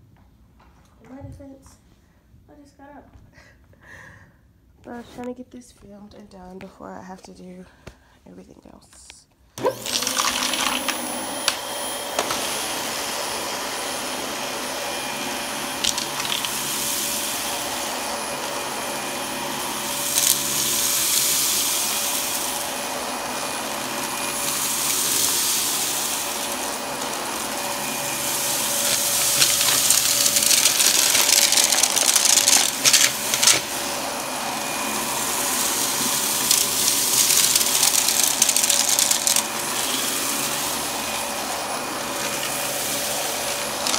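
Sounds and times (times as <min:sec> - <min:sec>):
vacuum cleaner running on carpet: 0:09.6 - 0:43.9.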